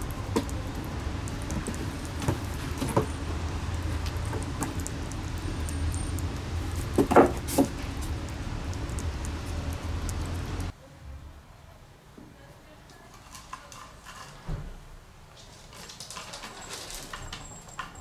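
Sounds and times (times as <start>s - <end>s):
kitten lapping from plate: 0.0s - 10.7s.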